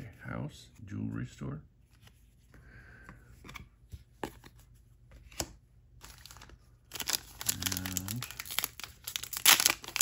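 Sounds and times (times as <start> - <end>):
cards rustling: 3.3 - 10.0.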